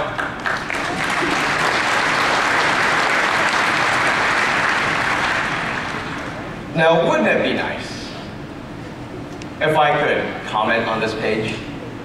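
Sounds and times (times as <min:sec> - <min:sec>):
audience applauding: 0:00.1 - 0:06.5.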